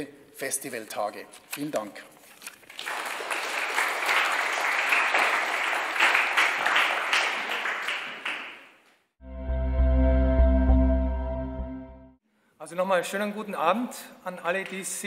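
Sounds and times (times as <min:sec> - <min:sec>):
audience applause: 0:02.8 - 0:08.7.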